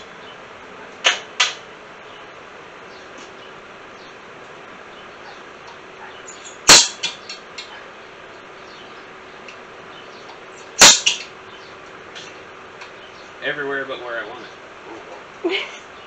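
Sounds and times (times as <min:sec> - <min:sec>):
electric fan running: 0:00.0 - 0:16.0
punch striking steel plate: 0:06.7 - 0:07.2, 0:10.8 - 0:11.3.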